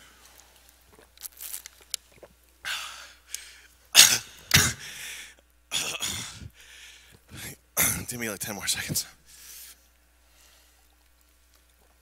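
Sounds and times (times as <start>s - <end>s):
man coughing: 4.0s - 4.9s, 5.7s - 6.5s.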